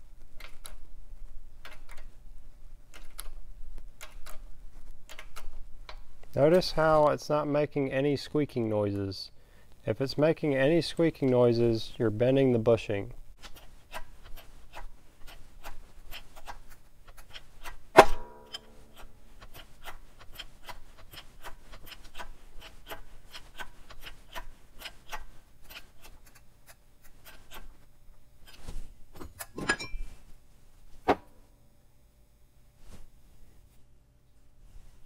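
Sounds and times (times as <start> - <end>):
loud ringing metallic clank: 18.0 - 18.8.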